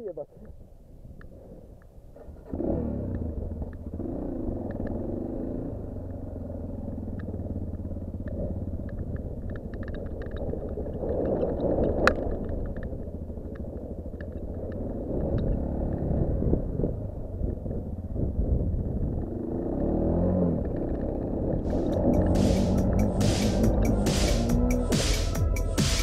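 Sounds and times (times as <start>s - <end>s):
quad bike engine revving: 2.2s - 12.4s, 13.1s - 26.0s
sharp knock: 22.2s - 26.0s.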